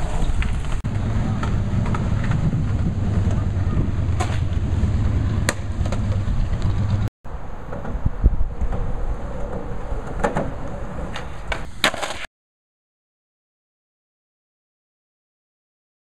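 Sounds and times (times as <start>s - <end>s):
skateboard wheels rolling on asphalt: 0.0s - 12.3s.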